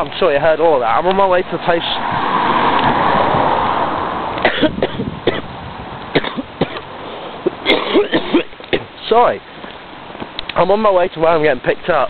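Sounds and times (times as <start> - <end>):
car passing by: 1.1 - 4.4
person coughing: 4.4 - 5.4, 6.2 - 6.8, 7.5 - 8.9.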